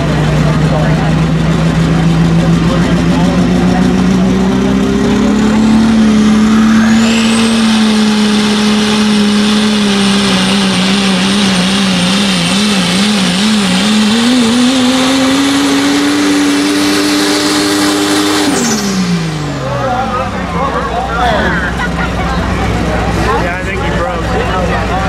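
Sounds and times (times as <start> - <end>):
pickup engine at full power: 0.0 - 25.0
turbocharger whistle: 5.4 - 13.4.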